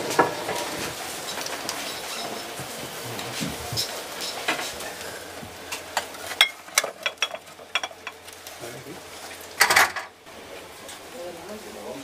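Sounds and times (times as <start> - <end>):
glass jars clinking: 6.4 - 8.2.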